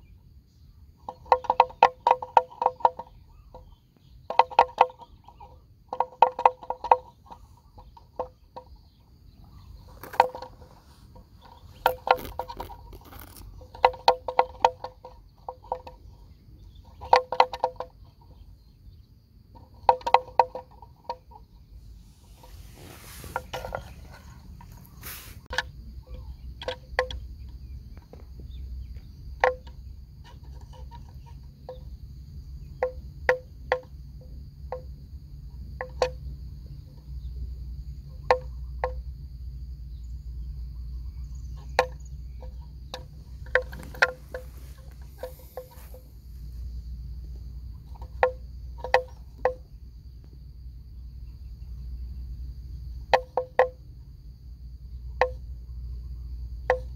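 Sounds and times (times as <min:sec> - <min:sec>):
high insect drone: 0:00.0 - 0:56.9
buffalo cropping grass: 0:09.7 - 0:16.0, 0:21.8 - 0:25.7, 0:43.0 - 0:46.7.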